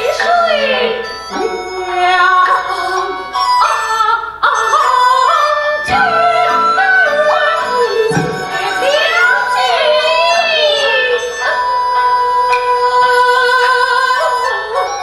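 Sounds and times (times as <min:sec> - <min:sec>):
bamboo flute: 0:00.0 - 0:15.0
opera singing with wavering melody: 0:00.0 - 0:15.0
sharp knock: 0:05.9 - 0:08.8.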